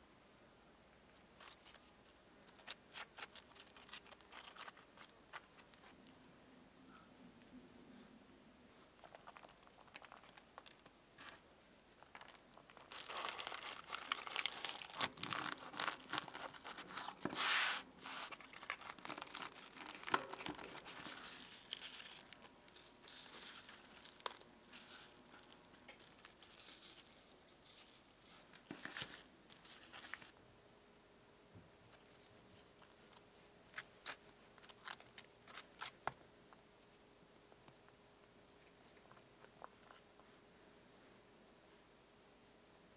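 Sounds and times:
flaky bread crackling: 1.4s - 6.0s, 8.9s - 30.4s.

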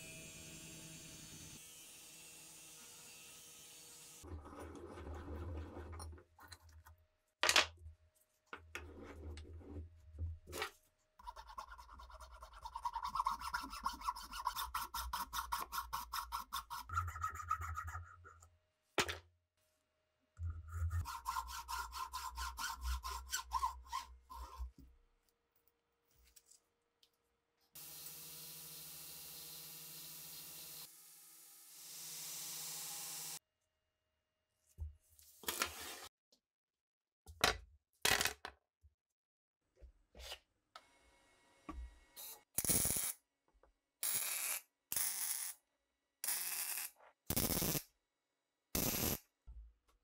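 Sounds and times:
hand file rasping on wood: 11.2s - 17.5s, 21.0s - 24.6s.

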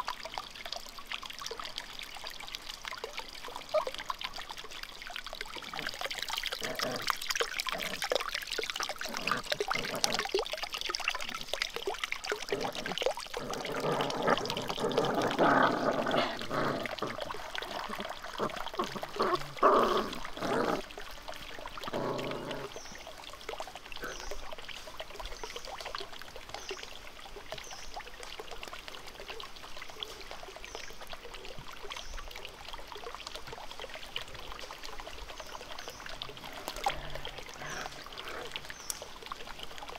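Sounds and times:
water trickling into pond: 0.0s - 39.9s
puppies eating: 12.3s - 22.8s.

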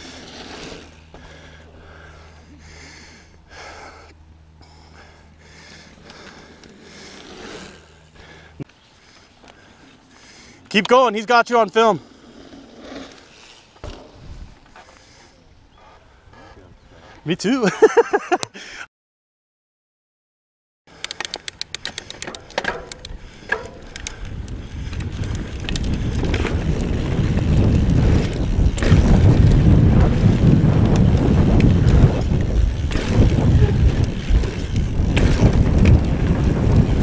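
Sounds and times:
bicycle rapid clicking: 0.0s - 3.8s, 4.6s - 10.9s, 11.9s - 14.2s, 20.9s - 37.0s
bike frame rattle: 21.0s - 37.0s
tyre rumble: 22.4s - 37.0s
wind on microphone: 23.1s - 37.0s
bike knocking over bumps: 24.8s - 37.0s.

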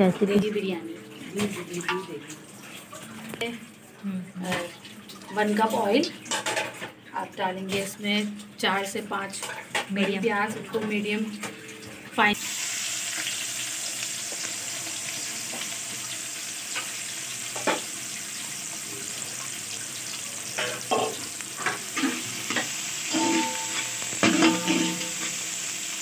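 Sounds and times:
onions sizzling in oil: 12.2s - 26.0s
metal spoon scraping pot: 20.9s - 25.4s.

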